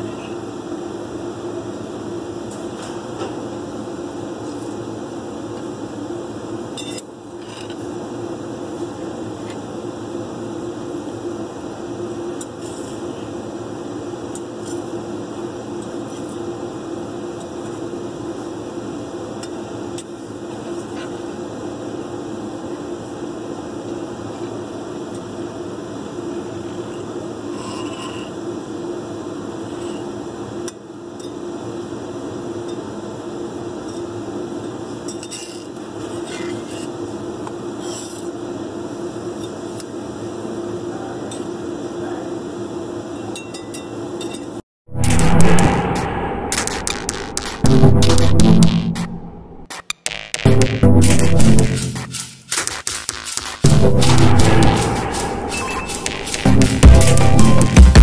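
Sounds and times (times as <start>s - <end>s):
machine humming: 44.9s - 58.0s.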